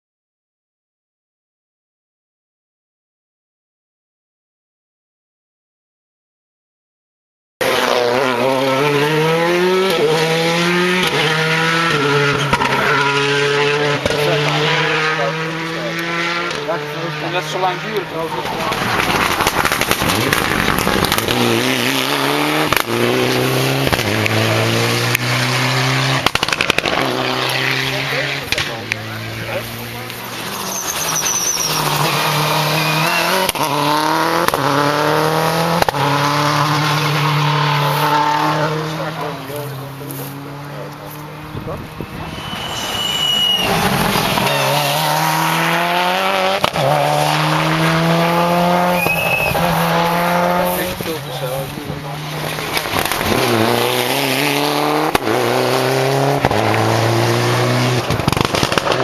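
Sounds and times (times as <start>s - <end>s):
car engine accelerating: 7.6s - 59.0s
burst of sharp cracks: 58.1s - 59.0s.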